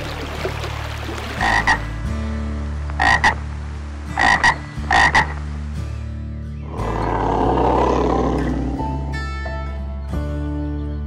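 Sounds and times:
tree frog croaking: 0:01.2 - 0:02.0, 0:02.9 - 0:05.5
low steady drone: 0:01.4 - 0:09.8.

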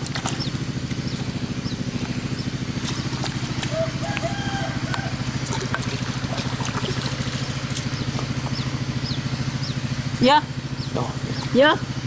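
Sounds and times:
small engine running: 0:00.0 - 0:12.0
water pouring and trickling: 0:02.7 - 0:08.8.

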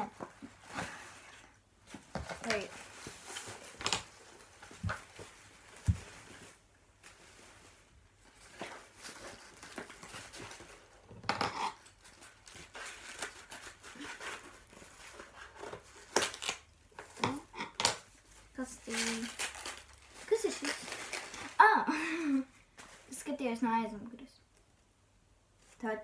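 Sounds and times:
wrapping paper rustling: 0:00.0 - 0:11.0, 0:11.8 - 0:17.2, 0:18.0 - 0:21.9.

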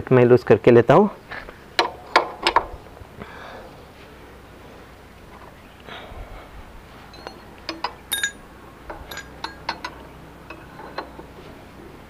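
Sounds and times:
spanner clinking on axle nut: 0:07.1 - 0:11.4.

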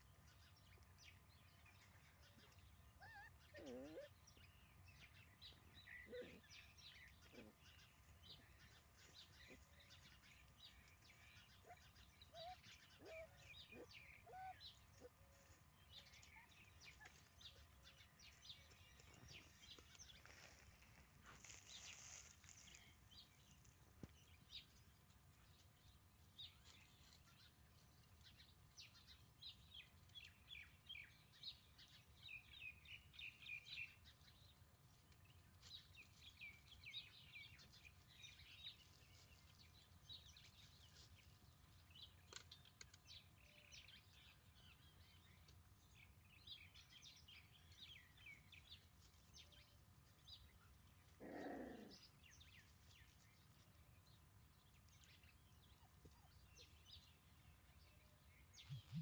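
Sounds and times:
faint bird chirps: 0:57.8 - 0:59.0.

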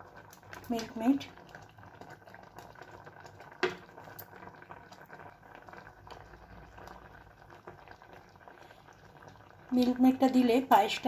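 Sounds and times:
thick pudding bubbling in pot: 0:00.0 - 0:11.0.

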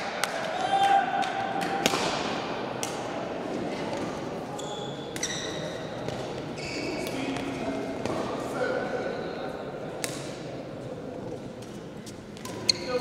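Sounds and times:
background murmur: 0:00.0 - 0:13.0
shoe squeaks on court floor: 0:04.6 - 0:05.8, 0:06.6 - 0:07.3, 0:12.5 - 0:13.0.

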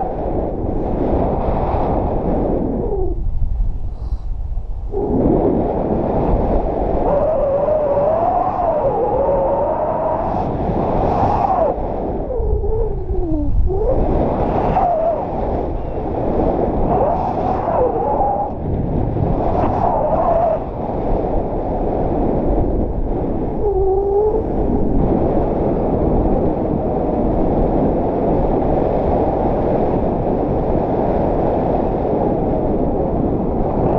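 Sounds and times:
wind rushing over microphone: 0:00.0 - 0:33.9.

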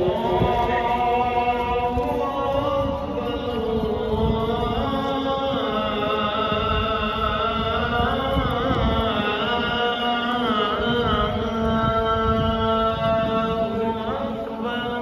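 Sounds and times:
person chanting a melody: 0:00.0 - 0:15.0.

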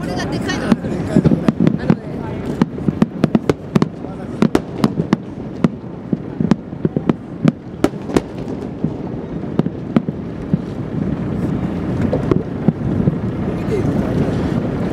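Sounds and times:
fireworks shells bursting: 0:00.7 - 0:10.9.

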